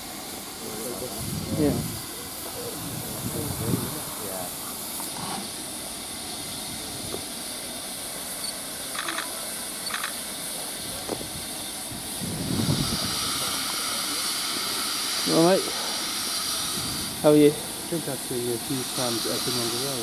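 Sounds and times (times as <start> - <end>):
steam safety valve hissing: 0.0 - 20.0.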